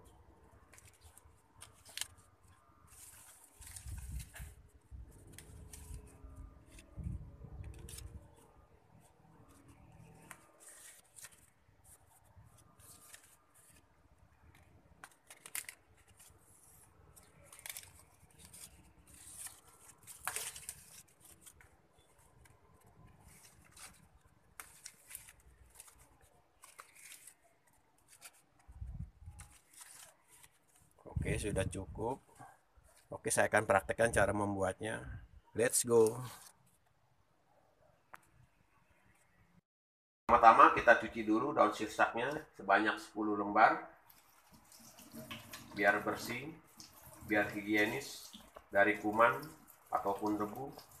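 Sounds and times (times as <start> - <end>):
leaves rustling: 0.6 - 33.5, 44.0 - 51.0
leaf stalks snapping: 0.7 - 2.2, 14.5 - 16.3, 17.1 - 21.7.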